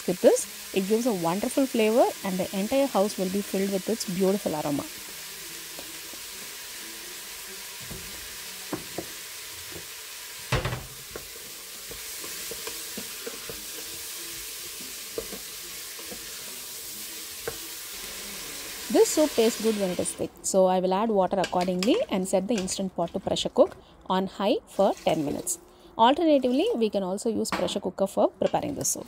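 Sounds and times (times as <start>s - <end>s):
vegetables sizzling in a pot: 0.0s - 20.6s, 24.7s - 25.6s.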